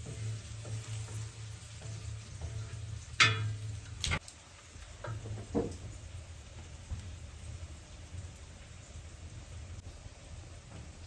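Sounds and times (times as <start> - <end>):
garlic skins crackling: 0.0 - 5.0.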